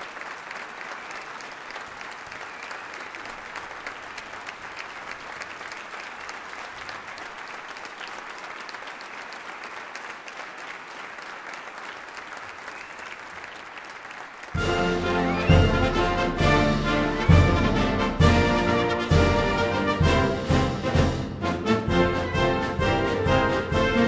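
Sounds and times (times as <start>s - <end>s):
audience applauding: 0.0s - 20.4s
brass band playing loudly: 14.6s - 24.0s.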